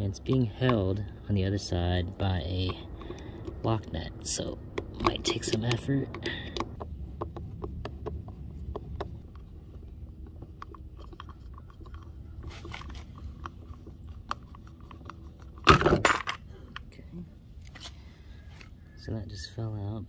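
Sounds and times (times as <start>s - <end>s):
screwdriver clicks and scrapes: 4.7s - 15.7s.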